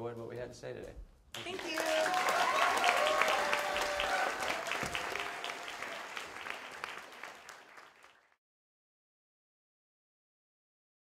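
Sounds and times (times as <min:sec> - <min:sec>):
audience applauding: 0:01.4 - 0:08.4
voices over applause: 0:01.4 - 0:08.4.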